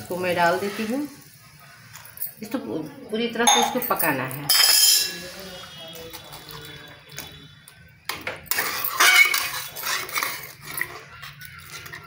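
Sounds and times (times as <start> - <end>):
spatula scraping metal pan: 8.5 - 11.2.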